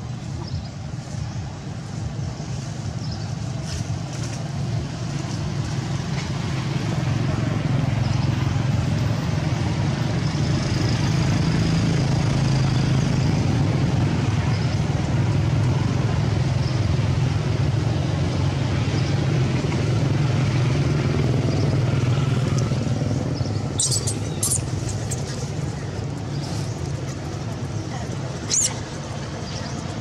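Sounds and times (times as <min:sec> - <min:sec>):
faint high squeaks: 0:23.8 - 0:25.4.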